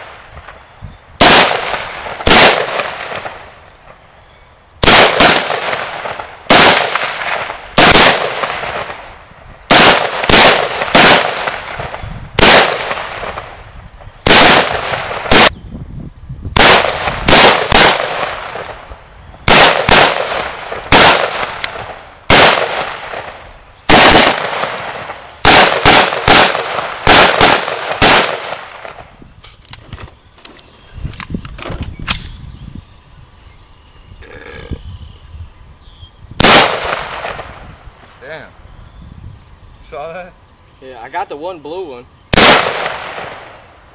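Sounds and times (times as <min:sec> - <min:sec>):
rifle shots with rolling echo: 0:01.2 - 0:04.0, 0:04.8 - 0:13.6, 0:14.2 - 0:15.5, 0:16.6 - 0:29.1, 0:36.4 - 0:37.7, 0:42.3 - 0:43.8.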